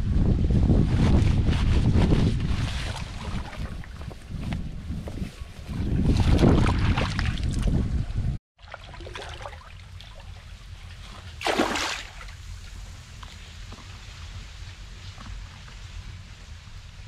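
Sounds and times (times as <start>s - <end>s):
microphone rumble: 0.0s - 8.4s
water trickling and sloshing: 2.4s - 13.9s.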